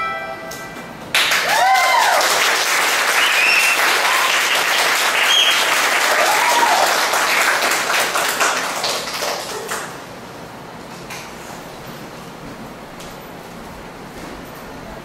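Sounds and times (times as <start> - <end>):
audience applauding and cheering: 1.1 - 10.0
high whoops: 1.2 - 7.2.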